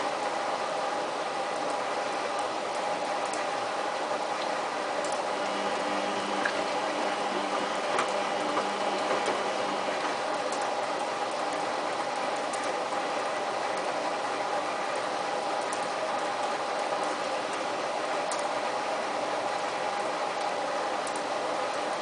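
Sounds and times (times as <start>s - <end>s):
motor hum: 4.9s - 11.4s
washing machine drum sloshing water: 5.0s - 14.1s
low hum: 5.2s - 10.5s.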